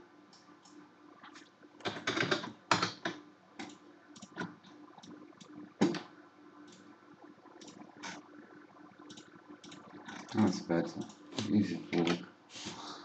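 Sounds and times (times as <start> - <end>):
mouse clicking: 9.1 - 9.8.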